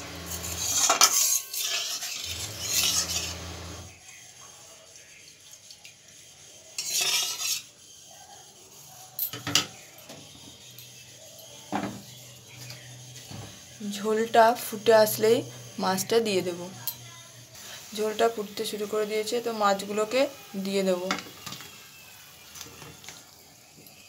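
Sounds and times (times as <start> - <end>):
metal spatula scraping a pan: 0.1 - 4.0, 6.4 - 23.0.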